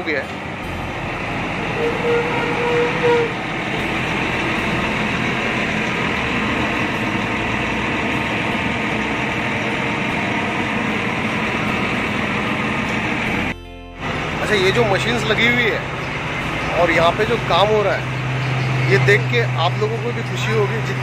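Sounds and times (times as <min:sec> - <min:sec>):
diesel machinery engine running: 0:00.0 - 0:21.0
short high tone: 0:00.6 - 0:05.5.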